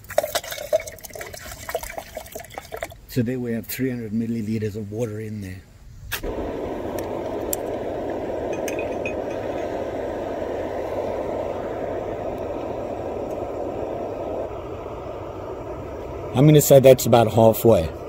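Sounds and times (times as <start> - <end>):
gas stove burning with rushing roar: 6.2 - 18.0.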